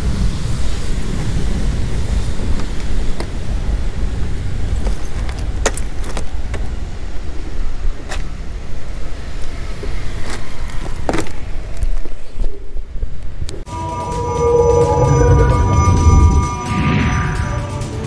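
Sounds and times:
steady low rumble: 13.5s - 17.8s.

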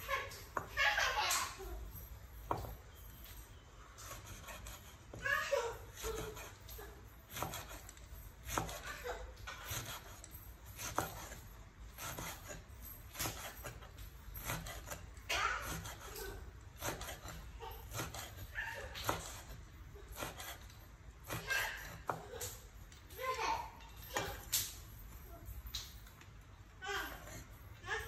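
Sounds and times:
cleaver chopping on wooden board: 7.3s - 7.8s, 8.5s - 8.8s.

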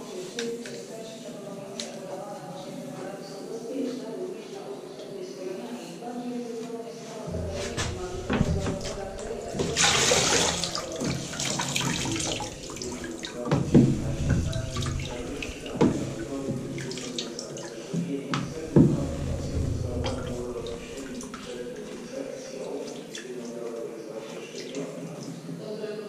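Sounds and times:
float knocking on bucket: 7.3s - 22.2s
water sloshing in bucket: 7.3s - 25.4s.

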